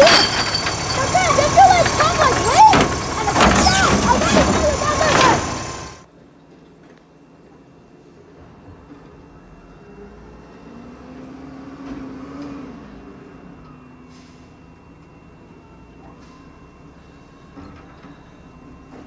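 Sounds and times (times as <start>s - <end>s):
garbage truck engine running: 0.0s - 6.1s.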